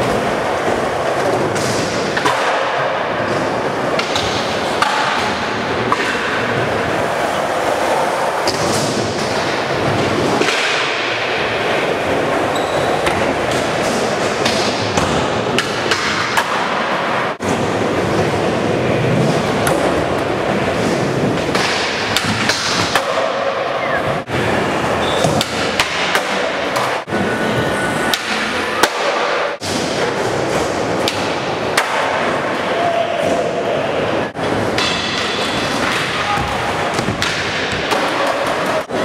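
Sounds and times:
skateboards rolling on concrete: 0.0s - 21.7s.

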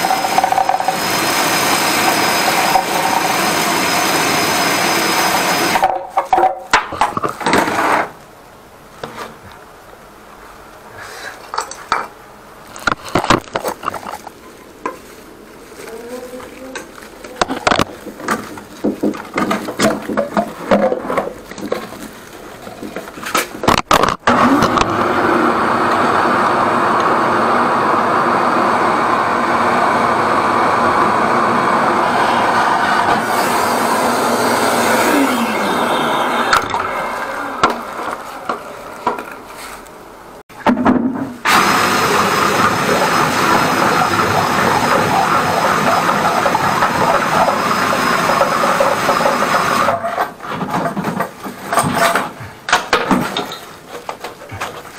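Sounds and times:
electric drill running drain cleaner: 0.0s - 5.9s, 24.3s - 37.8s, 41.5s - 49.9s.

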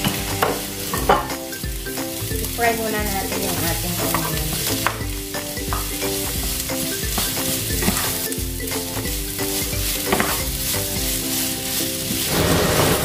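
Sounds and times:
spoon knocking against pan: 0.0s - 1.8s, 4.0s - 8.3s, 10.0s - 10.6s
onions sizzling in pan: 0.0s - 13.0s
wooden spoon scraping pan: 5.7s - 13.0s.

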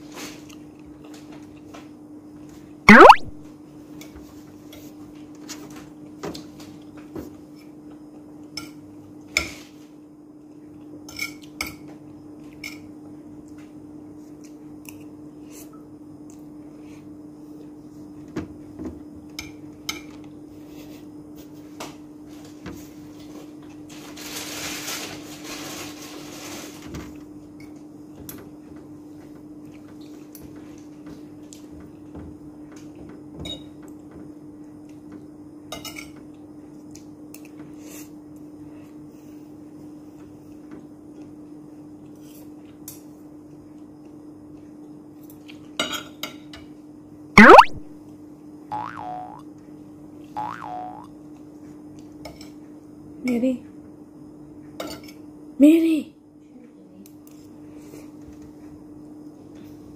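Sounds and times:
cutlery clinking on a plate: 35.8s - 36.2s, 54.8s - 55.2s.

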